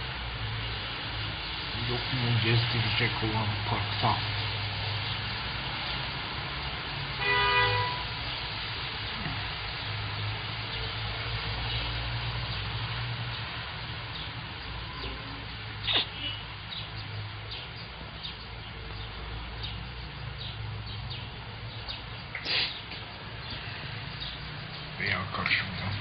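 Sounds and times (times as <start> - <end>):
low traffic hum: 0.0 - 26.0
birds chirping: 7.6 - 26.0.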